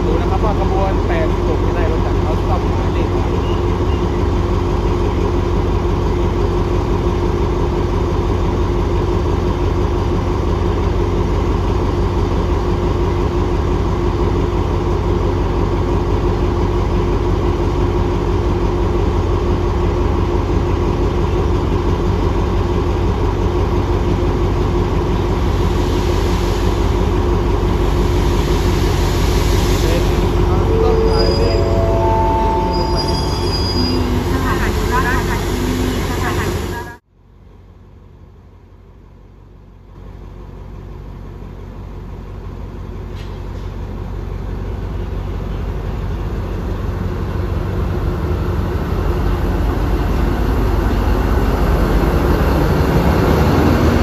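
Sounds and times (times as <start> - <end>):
train pulling in hissing: 0.0 - 37.0
diesel locomotive idling: 0.0 - 54.0.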